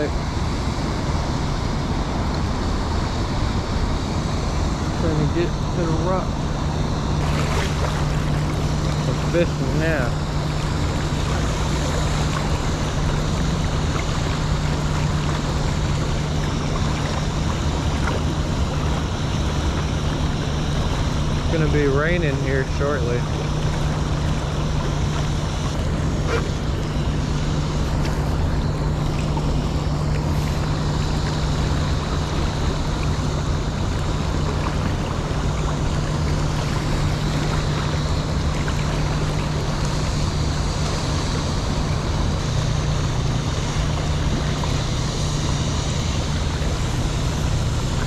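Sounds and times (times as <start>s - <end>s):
low droning hum: 0.0s - 48.0s
river water rushing: 7.2s - 18.9s.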